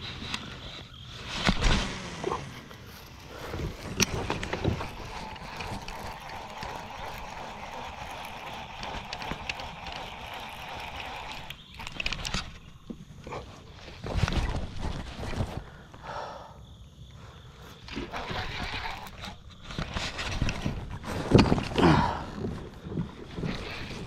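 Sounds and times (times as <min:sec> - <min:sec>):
fishing reel whirring: 0:02.5 - 0:12.8, 0:17.8 - 0:20.8, 0:23.3 - 0:24.0.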